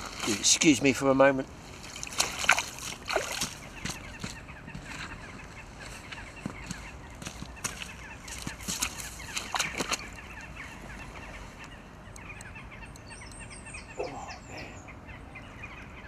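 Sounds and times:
water splashing: 1.6s - 4.4s, 8.3s - 10.5s.

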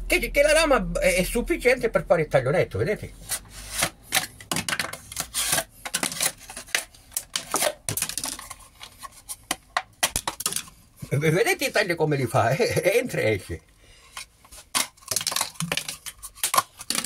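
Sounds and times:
blade cutting crackling plastic: 5.0s - 8.5s, 14.6s - 17.0s.

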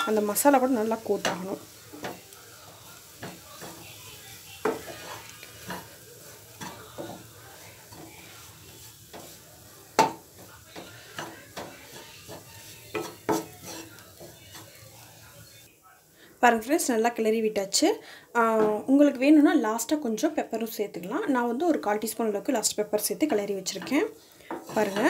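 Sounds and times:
spatula tapping a pan: 0.0s - 15.3s, 18.6s - 18.9s, 23.2s - 25.0s
spatula scraping a pan: 0.0s - 15.7s, 23.0s - 25.0s
faint sizzle of frying: 0.0s - 25.0s.

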